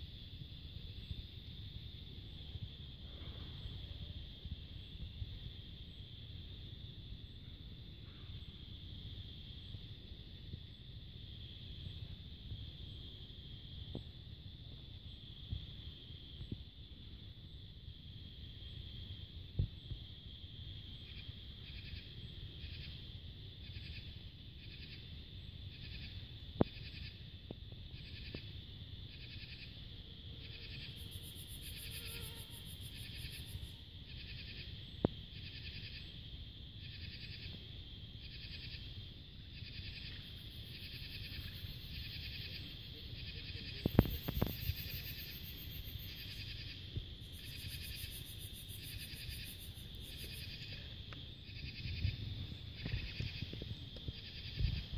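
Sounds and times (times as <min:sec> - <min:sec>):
insects chirping: 0:00.0 - 0:54.9.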